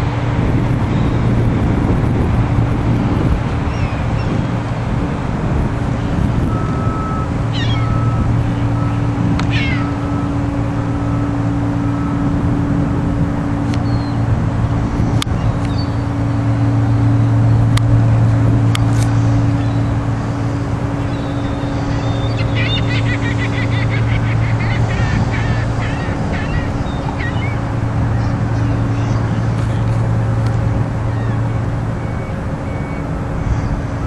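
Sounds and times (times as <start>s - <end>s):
ship engine drone: 0.0s - 34.0s
wind noise: 0.0s - 34.0s
falling bird calls: 6.8s - 10.5s, 19.1s - 34.0s.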